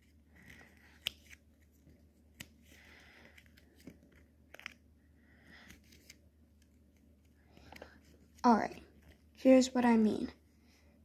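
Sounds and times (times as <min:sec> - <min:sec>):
paper fold clicks: 0:00.4 - 0:04.8.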